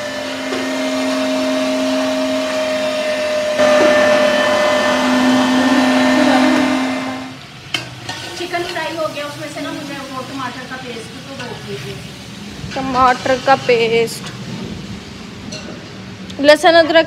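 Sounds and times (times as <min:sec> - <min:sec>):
electric meat grinder running: 0:00.0 - 0:07.3.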